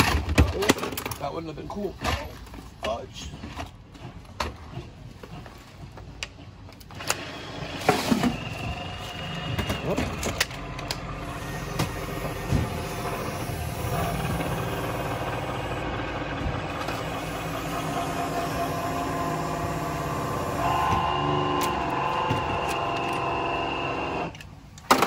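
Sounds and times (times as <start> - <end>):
electric tool motor hum: 11.0 - 24.3.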